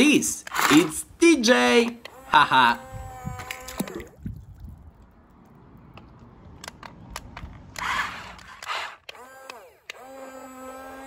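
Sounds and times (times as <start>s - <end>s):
toy cars clicking: 5.9s - 11.0s
rustling scraping of toy cars: 6.9s - 11.0s.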